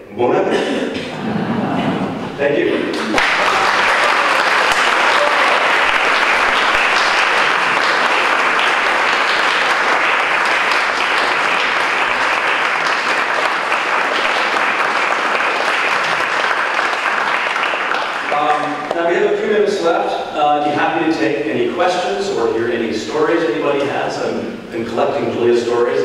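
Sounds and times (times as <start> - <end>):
audience applauding: 2.8 - 19.3.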